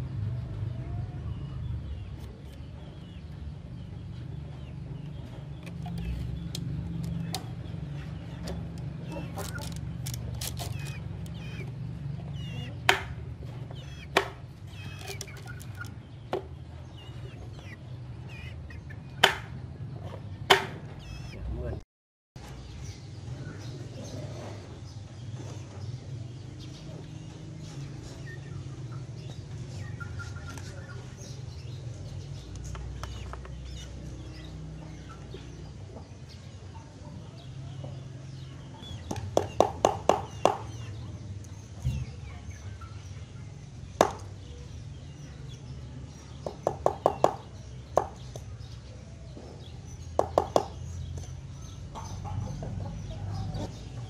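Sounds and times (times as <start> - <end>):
chicken clucking: 7.0 - 21.8, 48.9 - 54.0.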